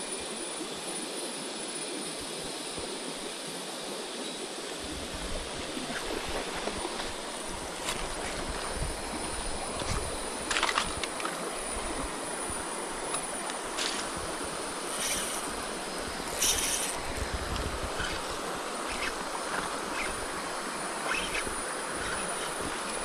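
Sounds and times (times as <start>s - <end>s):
stream rushing: 4.5s - 23.0s.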